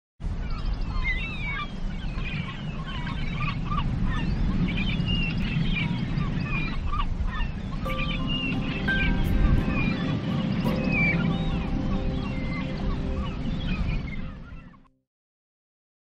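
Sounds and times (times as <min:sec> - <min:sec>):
steady low rumble: 0:07.6 - 0:14.8.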